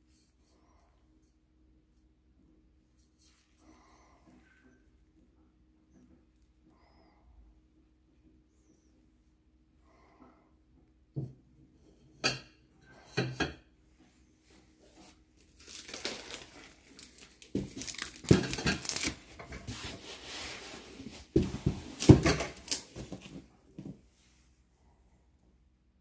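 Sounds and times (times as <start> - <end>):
cardboard box rustling and scraping: 17.5 - 23.5.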